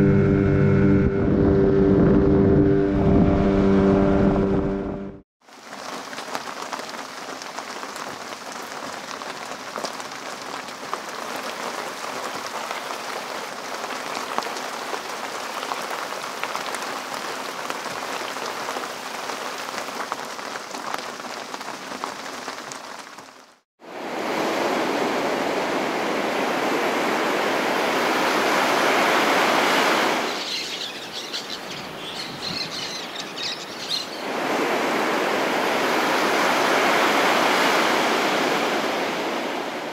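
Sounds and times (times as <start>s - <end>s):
rain pattering on a hatch: 5.4s - 23.6s
heavy rain falling on water: 5.4s - 39.9s.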